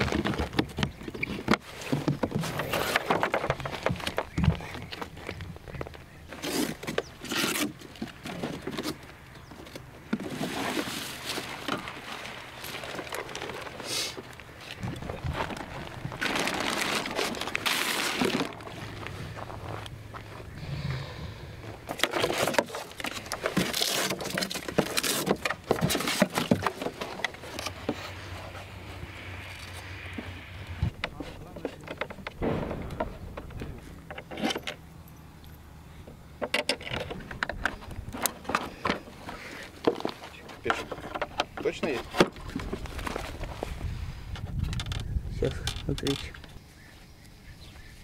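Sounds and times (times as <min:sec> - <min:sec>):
plastic rustling: 0:10.2 - 0:19.8, 0:22.0 - 0:28.1.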